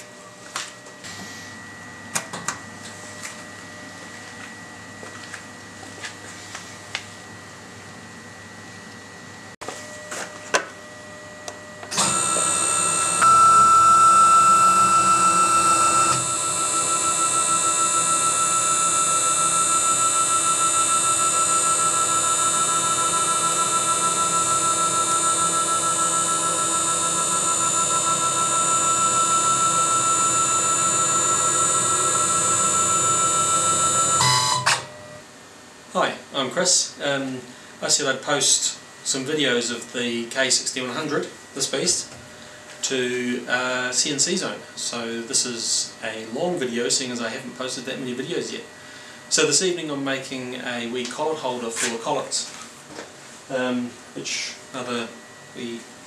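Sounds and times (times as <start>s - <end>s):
router motor whine: 11.4s - 35.2s.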